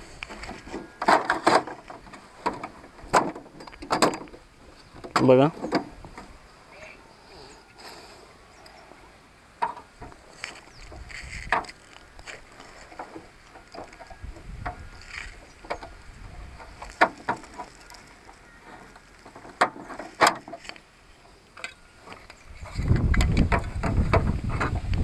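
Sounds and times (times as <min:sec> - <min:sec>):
hard plastic parts clicking: 0:09.6 - 0:20.8.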